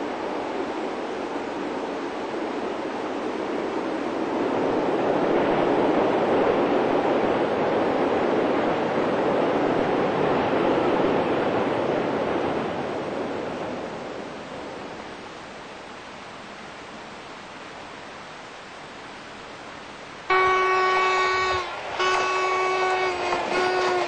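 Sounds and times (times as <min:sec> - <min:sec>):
locomotive horn chord: 0:20.3 - 0:24.0
train rumbling: 0:20.3 - 0:24.0.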